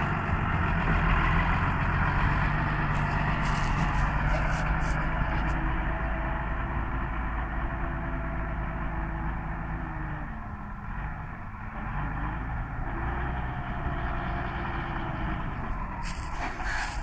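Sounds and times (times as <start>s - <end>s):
rush of cultivator noise: 0.0s - 6.6s, 14.2s - 17.0s
tractor engine under load: 0.0s - 17.0s.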